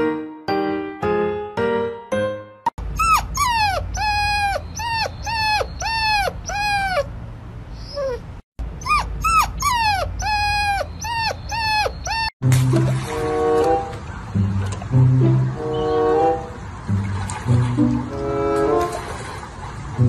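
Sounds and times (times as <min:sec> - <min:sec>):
puppy whining: 0:02.8 - 0:12.4.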